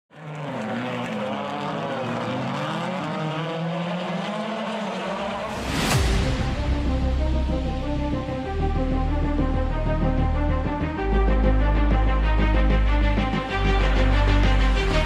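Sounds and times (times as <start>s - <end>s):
race car engine: 0.1s - 15.0s
loud sweeping whoosh: 5.2s - 9.3s
deep low boom: 5.6s - 8.9s.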